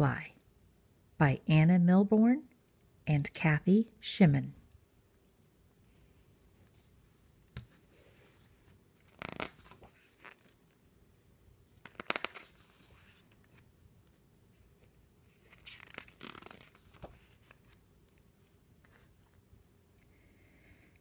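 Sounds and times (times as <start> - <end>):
book pages rustling: 6.6 - 19.5.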